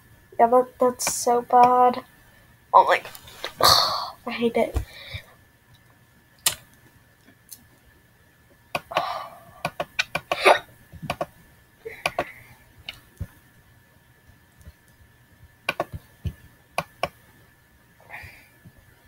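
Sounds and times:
computer mouse clicks: 9.6s - 10.4s, 11.1s - 11.3s, 15.7s - 16.0s.

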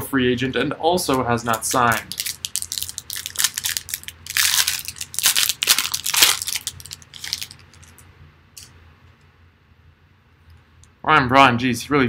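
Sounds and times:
plastic foil wrapper crinkling: 1.6s - 8.0s.

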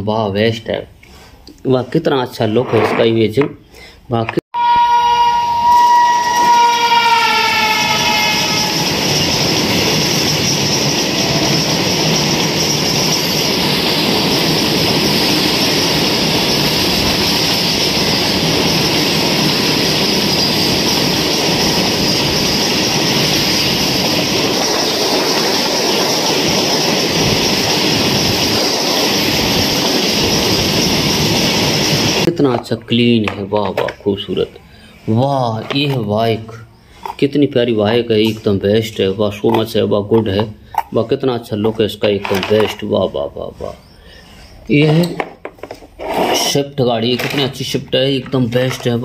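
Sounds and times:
train horn: 4.5s - 9.1s
train wheels rumbling and rattling: 5.5s - 49.0s.

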